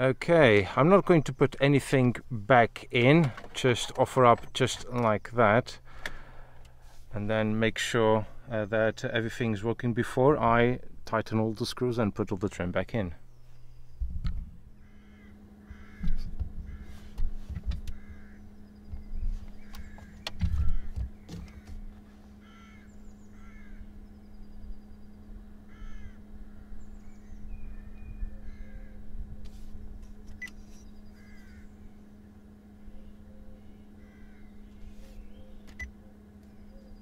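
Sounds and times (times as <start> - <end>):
steady low hum: 0.0 - 37.0
crows cawing: 5.9 - 6.6, 14.8 - 17.2, 17.9 - 18.7, 19.6 - 24.0, 25.6 - 27.0, 28.4 - 29.1, 31.0 - 32.0, 33.9 - 35.0
knocks and thumps: 19.7 - 21.9.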